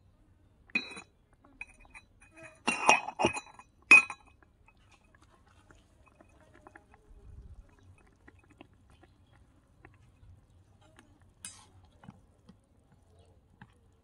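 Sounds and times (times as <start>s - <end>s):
metal cup clinking: 0.7s - 4.8s.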